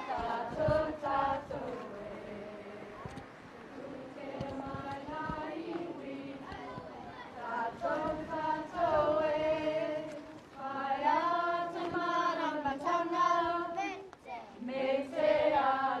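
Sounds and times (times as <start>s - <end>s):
voices singing in unison: 0.0s - 16.0s.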